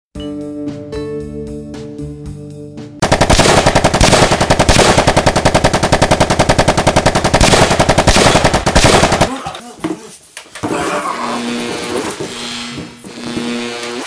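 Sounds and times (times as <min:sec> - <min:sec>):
machine-gun fire: 0:03.0 - 0:09.4.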